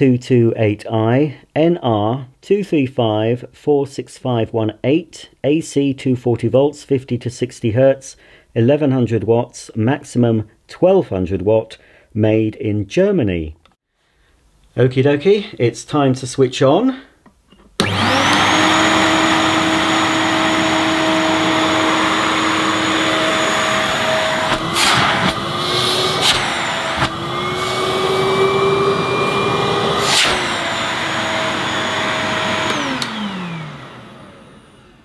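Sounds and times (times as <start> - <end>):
vacuum cleaner running: 17.8 - 35.0
knocks of vacuum being moved: 22.2 - 28.2.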